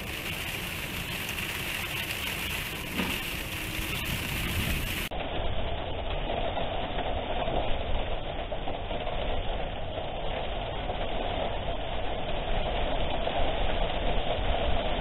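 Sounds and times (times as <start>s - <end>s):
strong wind buffeting microphone: 1.6s - 5.8s.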